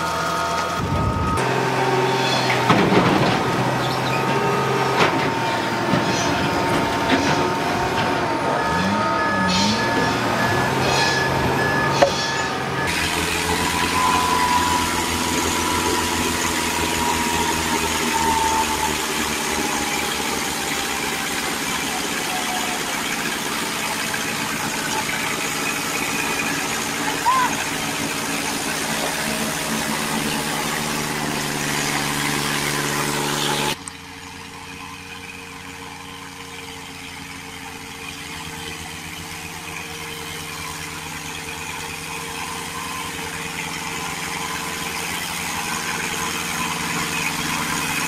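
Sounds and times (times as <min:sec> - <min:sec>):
diesel engine running: 0:00.0 - 0:48.0
falling whine: 0:00.0 - 0:48.0
tractor diesel engine under load: 0:00.0 - 0:48.0.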